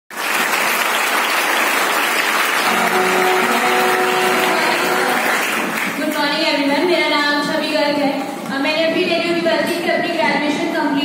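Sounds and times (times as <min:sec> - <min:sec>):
people clapping: 0:00.1 - 0:06.5
background music sustained notes: 0:02.7 - 0:05.5.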